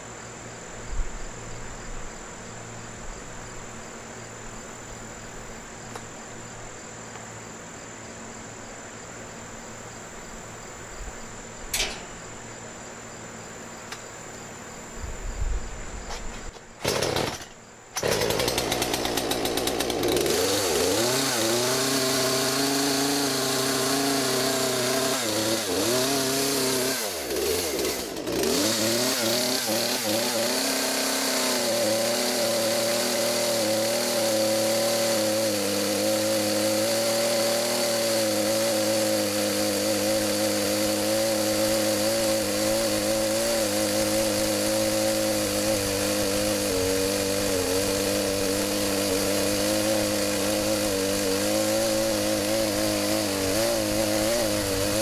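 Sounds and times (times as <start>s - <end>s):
chainsaw engine running: 16.2s - 55.0s.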